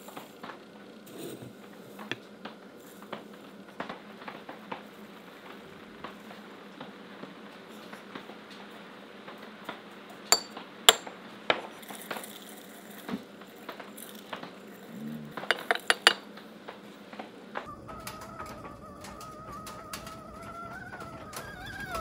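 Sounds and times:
ceramic dish and spoon clinking: 10.3s - 11.1s, 15.4s - 16.2s.

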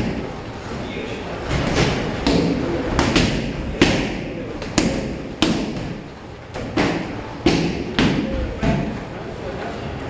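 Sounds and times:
punches and kicks smacking pads: 1.6s - 9.0s.

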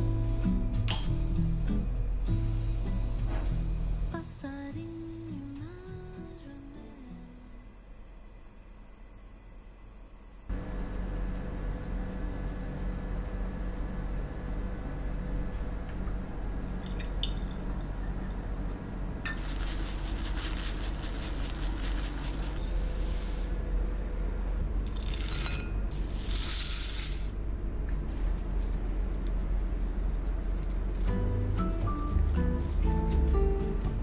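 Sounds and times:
oats and rice flakes poured into bowl: 19.4s - 23.5s, 26.1s - 27.4s.

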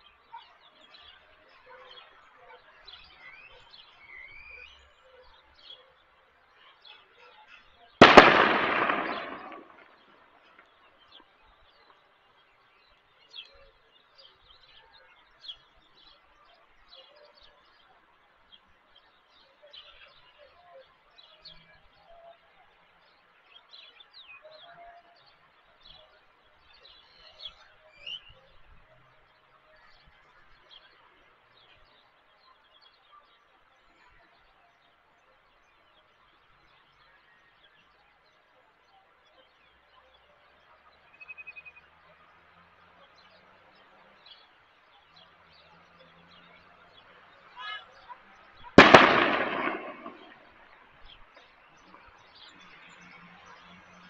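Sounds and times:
faint bird chirps: 0.0s - 42.3s.

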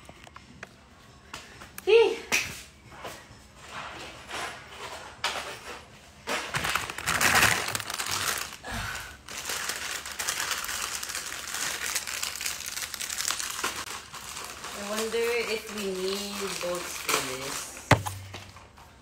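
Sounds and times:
plastic packaging crinkling: 6.5s - 18.3s.

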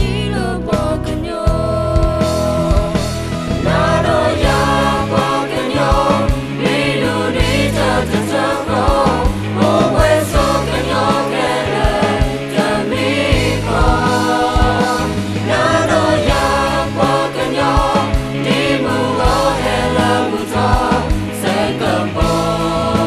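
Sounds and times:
band with electric guitar: 0.0s - 23.0s
group singing: 2.1s - 23.0s.

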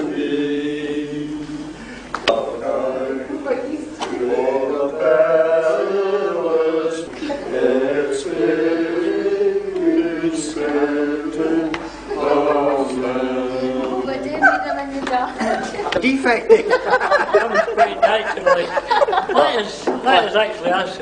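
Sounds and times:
group chanting a hymn: 0.0s - 15.0s.

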